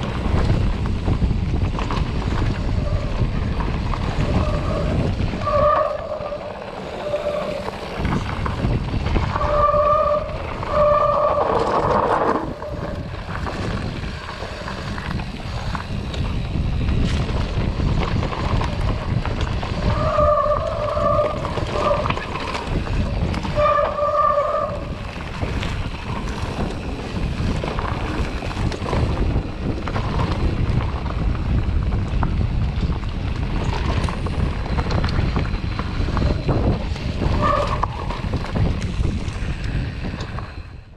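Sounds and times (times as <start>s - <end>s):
bike rattling over rough trail: 0.0s - 40.9s
wind buffeting microphone: 0.0s - 40.9s
disc brakes squealing: 4.0s - 13.1s, 19.7s - 25.2s, 34.4s - 40.1s.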